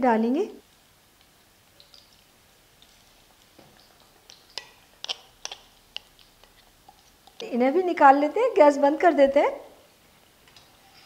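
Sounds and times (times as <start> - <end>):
oil crackling while deep-frying: 0.6 - 8.5.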